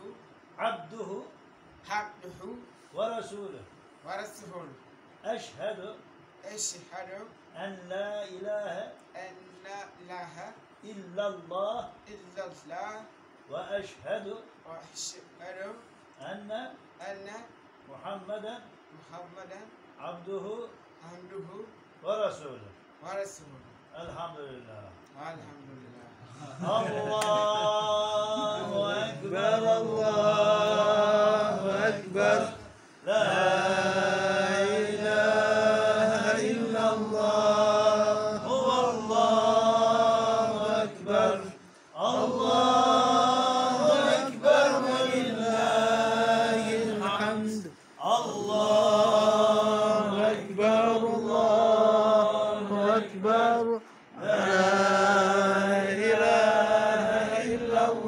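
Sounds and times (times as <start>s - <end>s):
men chanting: 26.3s - 58.0s.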